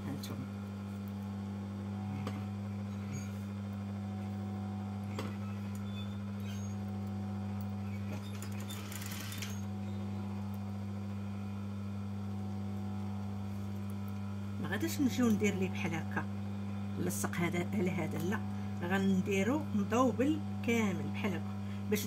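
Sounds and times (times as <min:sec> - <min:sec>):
sewing machine humming: 0:08.0 - 0:09.7
sewing machine stitching: 0:08.1 - 0:09.6.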